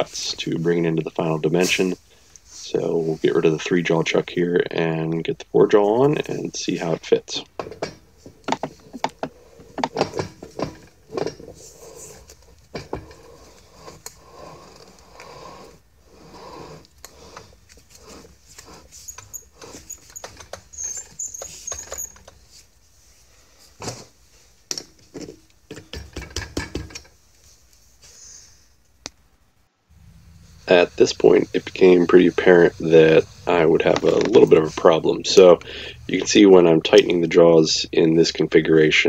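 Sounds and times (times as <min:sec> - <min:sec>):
faint high squeak: 0:19.0 - 0:22.3.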